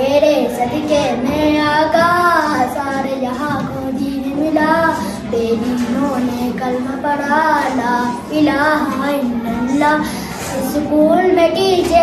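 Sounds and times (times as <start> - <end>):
boy singing devotional song: 0.0 - 12.0.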